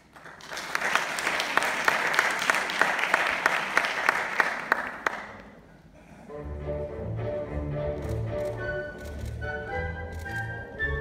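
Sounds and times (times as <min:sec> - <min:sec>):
audience applauding: 0:00.0 - 0:05.5
music with low strings: 0:06.3 - 0:11.0.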